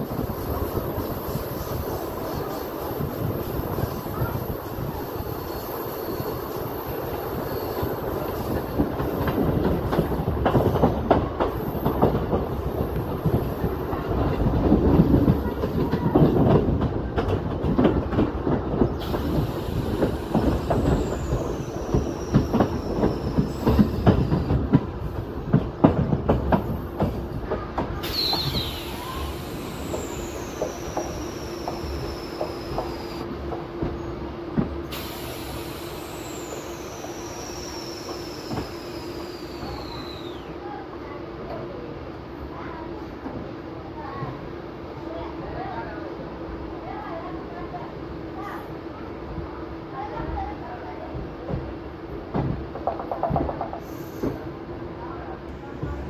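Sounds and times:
train wheel squeal: 0.0s - 14.0s, 18.8s - 24.6s, 28.0s - 33.2s, 34.9s - 40.6s, 53.1s - 54.6s
train wheels clattering over rails: 0.0s - 40.4s, 50.0s - 54.6s
train running hum: 0.0s - 56.0s.

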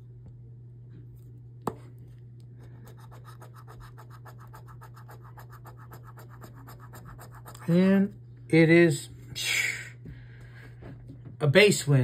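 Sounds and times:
steady low hum: 0.0s - 12.0s
scratching lottery ticket: 2.7s - 8.1s.

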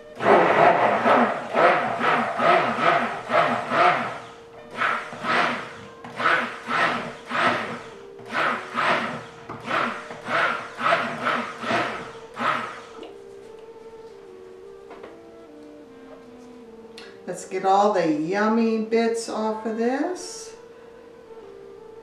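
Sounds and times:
stick blender churning: 0.0s - 13.1s.

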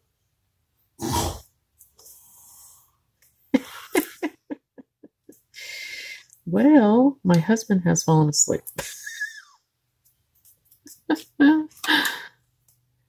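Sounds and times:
man snoring: 1.0s - 1.5s.

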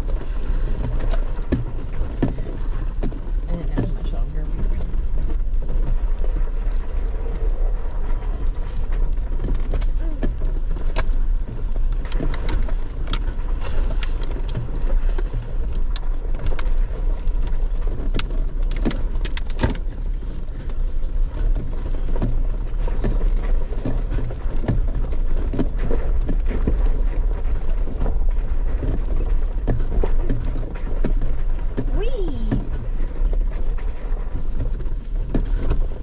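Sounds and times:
knocks and rattles over bumps: 0.0s - 36.0s
low engine and tyre rumble: 0.0s - 36.0s.

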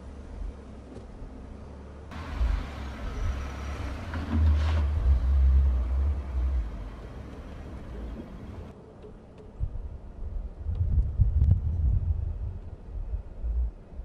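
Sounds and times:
pickup truck driving past: 2.1s - 8.7s.

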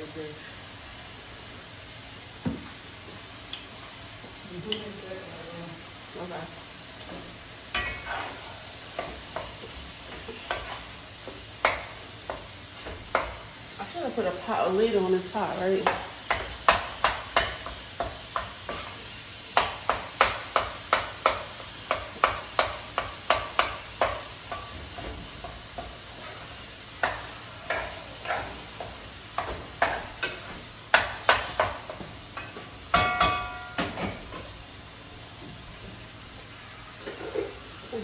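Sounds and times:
meat sizzling: 0.0s - 38.0s
utensil scraping a frying pan: 7.7s - 13.6s, 18.6s - 19.6s, 20.2s - 33.8s, 37.0s - 37.8s.

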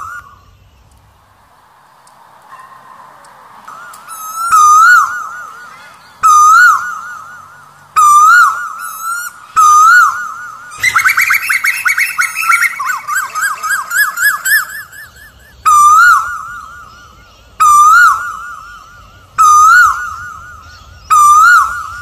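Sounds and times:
koel calling loudly: 10.8s - 16.3s.

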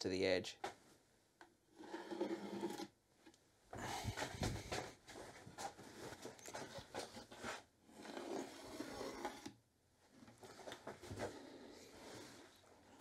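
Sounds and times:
pencil scratching on wood: 1.7s - 2.9s, 5.8s - 9.5s, 10.5s - 13.0s.

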